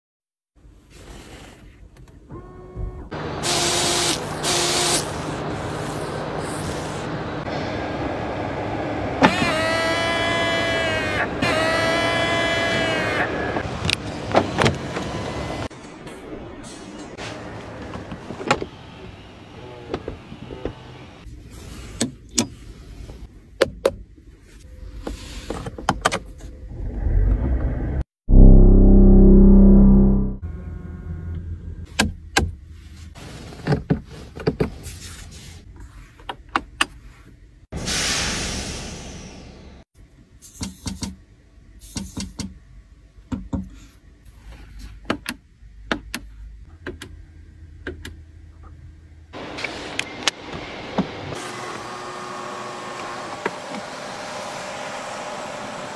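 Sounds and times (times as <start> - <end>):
low rumble: 26.6 - 31.8
low steady hum: 28.3 - 31.8.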